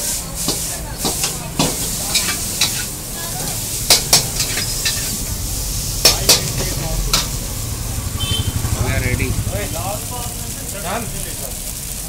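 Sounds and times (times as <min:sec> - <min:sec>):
metal spatula scraping a wok: 0:00.0 - 0:05.3
steady sizzle: 0:00.0 - 0:12.0
low rumble: 0:04.8 - 0:10.8.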